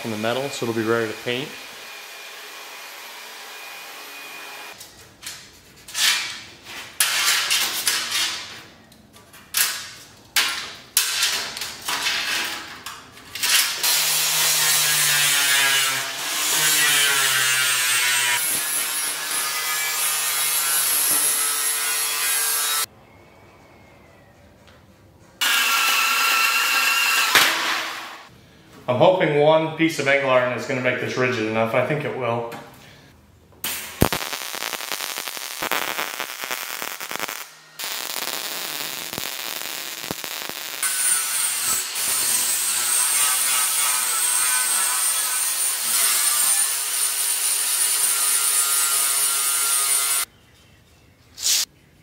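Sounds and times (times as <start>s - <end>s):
saw cutting metal: 0.3s - 4.8s, 13.8s - 22.9s, 25.4s - 28.3s, 40.8s - 50.3s
angle grinder grinding steel: 13.9s - 22.9s, 25.4s - 28.3s, 34.1s - 50.3s.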